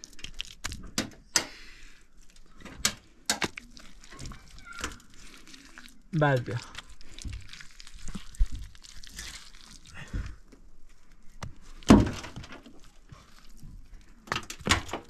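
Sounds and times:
knocks and thuds: 0:11.9 - 0:12.6.

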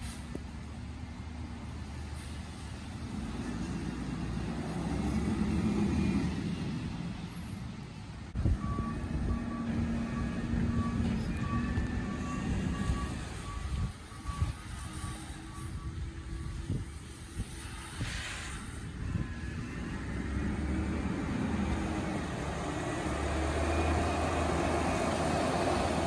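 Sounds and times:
reversing beeper: 0:08.4 - 0:16.9, 0:19.0 - 0:26.0.

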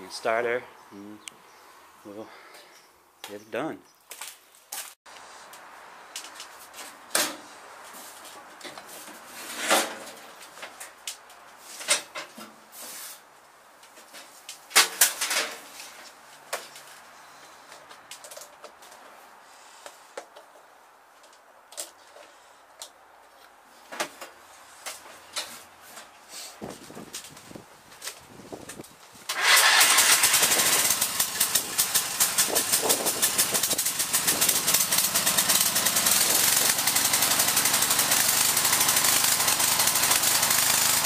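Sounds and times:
loud rattles: 0:29.3 - 0:41.0.

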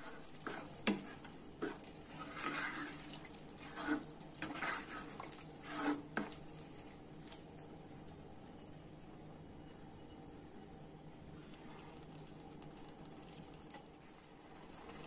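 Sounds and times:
spatula stirring thick gravy: 0:00.0 - 0:09.8, 0:11.4 - 0:15.0.

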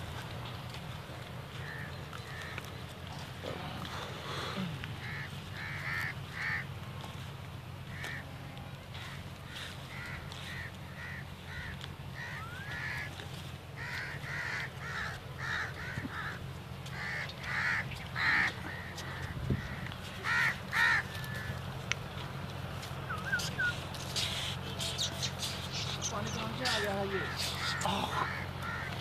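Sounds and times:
crows cawing: 0:01.1 - 0:29.0.

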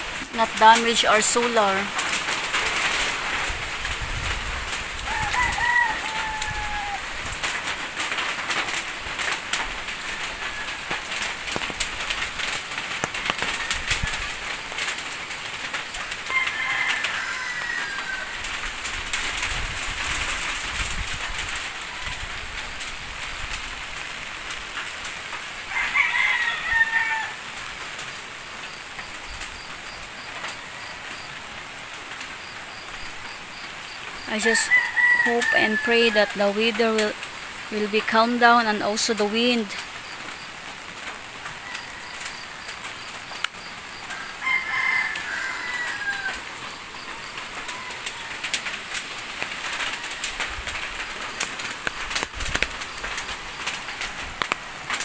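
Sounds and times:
steady rain with drips: 0:00.0 - 0:55.0
rooster crowing: 0:05.0 - 0:07.2, 0:10.0 - 0:11.3, 0:16.2 - 0:18.6, 0:25.6 - 0:27.6, 0:34.5 - 0:36.4, 0:41.4 - 0:43.2, 0:43.9 - 0:49.0, 0:49.6 - 0:51.2.

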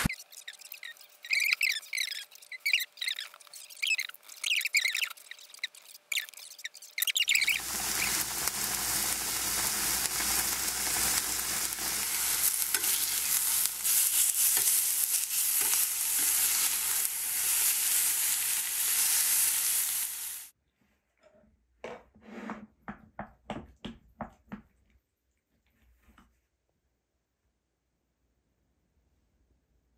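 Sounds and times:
beef sizzling in a frying pan: 0:07.4 - 0:20.5.

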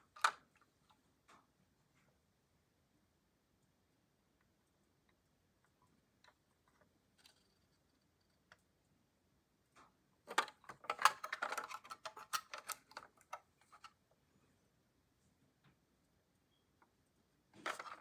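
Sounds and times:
metal model car clicking and rattling: 0:10.3 - 0:14.0, 0:17.6 - 0:18.0.

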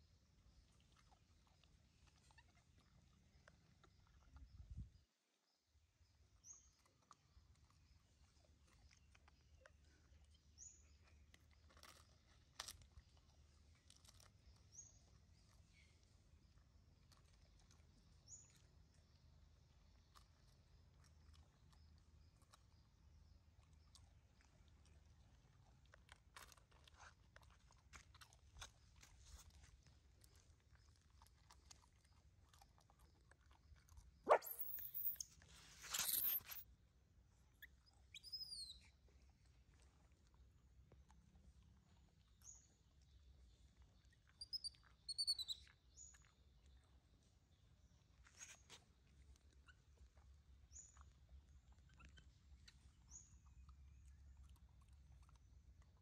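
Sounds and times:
puppy crunching dry food: 0:06.8 - 0:36.7
baby monkey squealing: 0:34.3 - 0:35.3, 0:44.4 - 0:45.6
short high chirps: 0:34.3 - 0:36.6.

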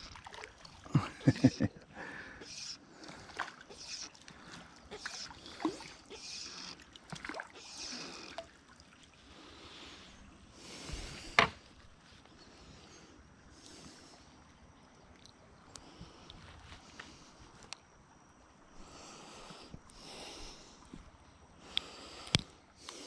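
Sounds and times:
water sloshing and splashing: 0:00.0 - 0:01.6, 0:02.9 - 0:12.2.

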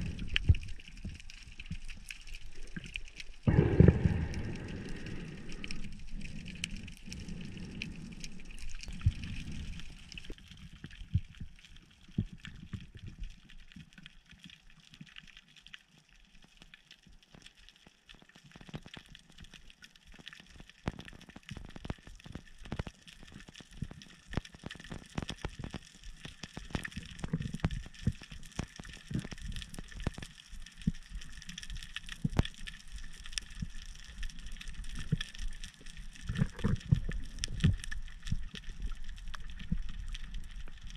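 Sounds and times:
low underwater bumps and rumbles: 0:00.0 - 0:13.3, 0:26.6 - 0:40.9
underwater crackle of clicks: 0:00.0 - 0:40.9.

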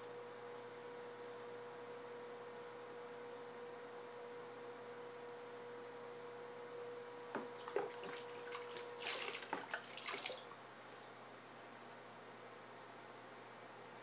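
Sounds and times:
water splashing and dripping: 0:07.4 - 0:11.1.

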